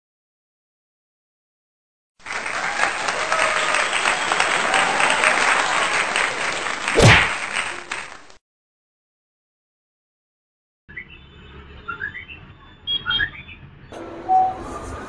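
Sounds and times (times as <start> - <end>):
crowd applause: 2.2 - 8.4
loud whoosh: 6.9 - 7.5.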